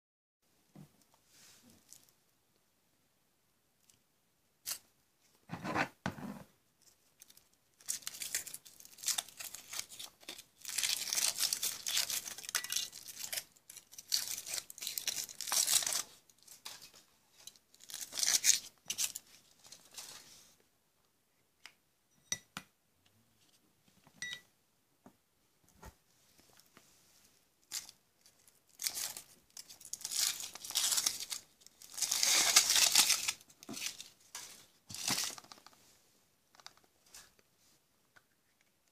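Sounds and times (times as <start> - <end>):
foil wrapper crinkling and tearing: 7.2 - 20.1, 27.6 - 35.8.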